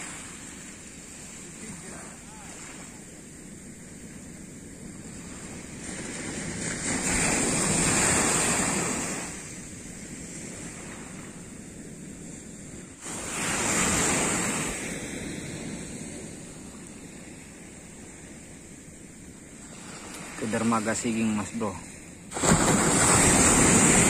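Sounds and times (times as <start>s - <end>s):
waves breaking on a sandy beach: 0.0s - 24.0s.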